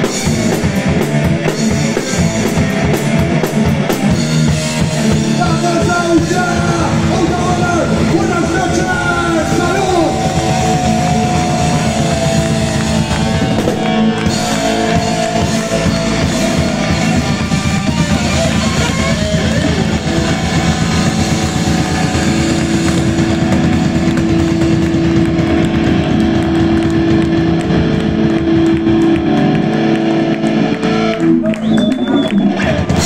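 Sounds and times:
live rock band: 0.0s - 33.0s.

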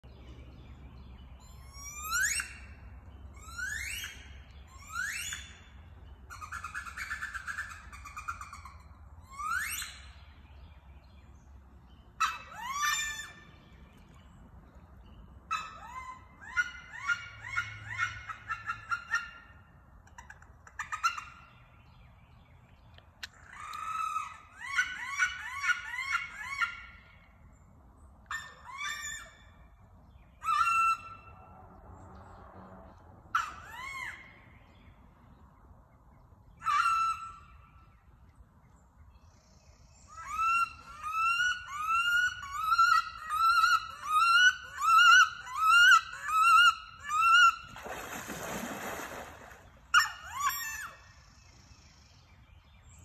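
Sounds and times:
wood duck squeals: 36.6s - 37.5s, 40.1s - 47.8s, 49.9s - 51.1s.

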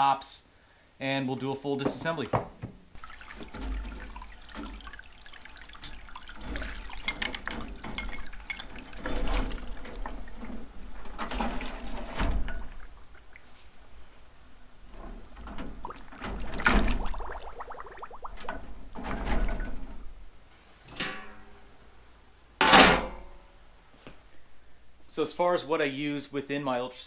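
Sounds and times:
liquid sloshing and splashing: 2.9s - 20.1s.

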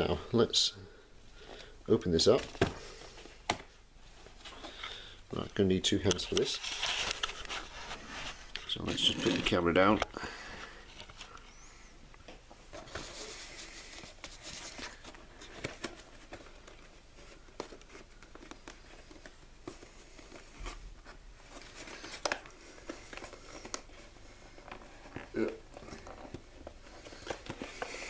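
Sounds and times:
cardboard rustling and scraping: 6.0s - 10.0s, 12.7s - 28.0s.

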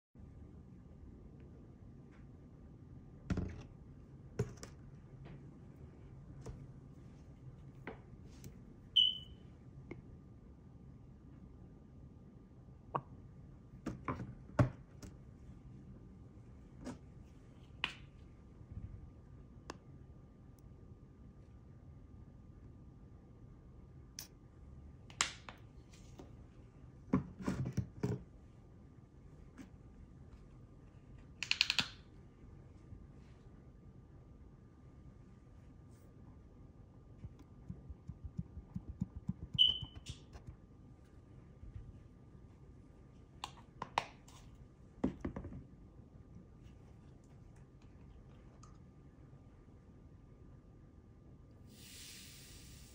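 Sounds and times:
high chirp: 9.0s - 9.4s, 39.5s - 40.2s.

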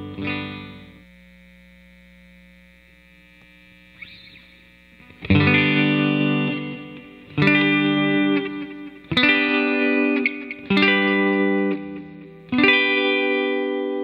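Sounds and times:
electric guitar chord strummed: 0.0s - 1.0s, 4.0s - 14.0s
faint guitar hum: 0.0s - 14.0s.

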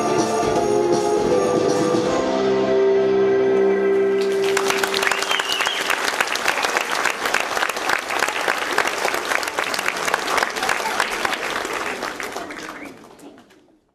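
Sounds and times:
audience applauding: 4.0s - 13.9s.

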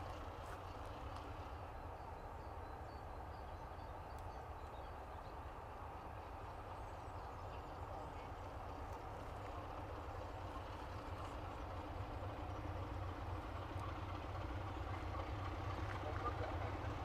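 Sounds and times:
diesel locomotive idling: 0.0s - 17.0s.

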